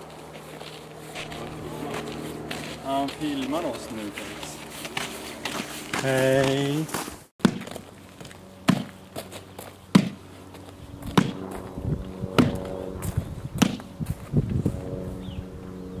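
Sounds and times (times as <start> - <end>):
low steady hum: 0.0 - 16.0
sharp knocks: 9.9 - 10.2, 11.2 - 11.4.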